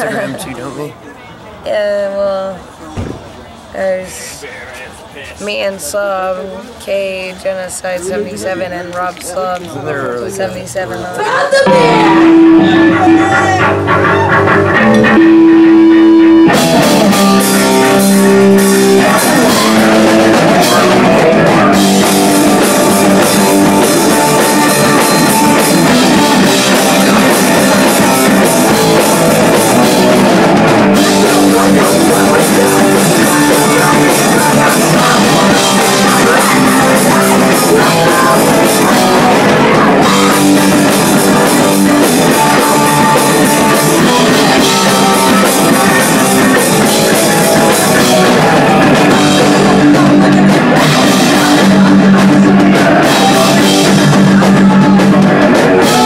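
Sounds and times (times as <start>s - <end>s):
punk rock band playing live: 11.6s - 56.0s.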